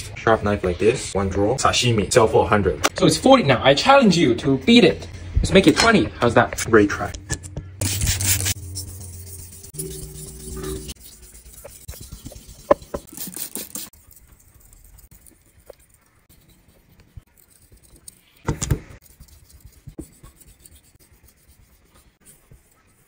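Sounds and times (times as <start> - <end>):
blade scraping on whetstone: 7.9 - 13.9.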